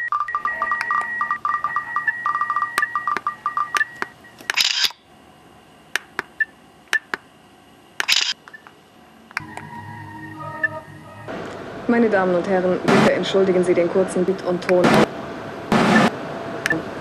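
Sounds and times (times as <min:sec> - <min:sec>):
electronic beeping tones: 0:00.0 - 0:04.9, 0:09.4 - 0:11.3
sharp electronic clicks: 0:00.0 - 0:05.0, 0:06.0 - 0:07.2, 0:08.0 - 0:09.7.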